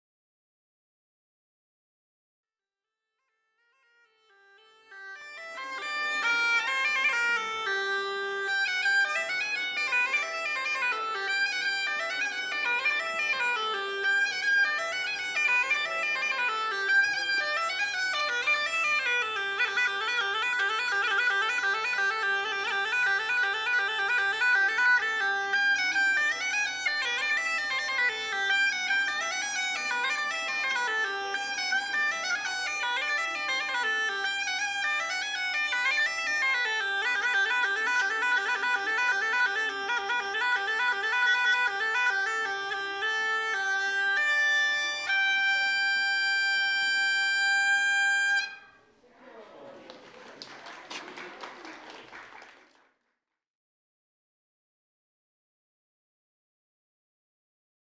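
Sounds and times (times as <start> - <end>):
bagpipe melody: 3.4 - 48.8
bagpipe drone: 4.0 - 48.8.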